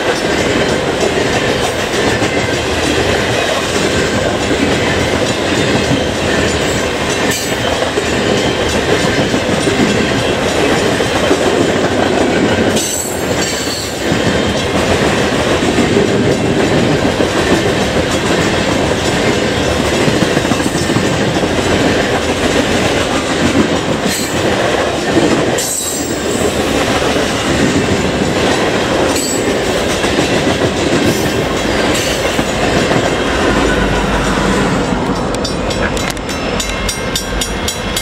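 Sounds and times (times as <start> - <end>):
train wheels rumbling and clattering: 0.0 - 38.0
crossing bell ringing: 30.3 - 38.0.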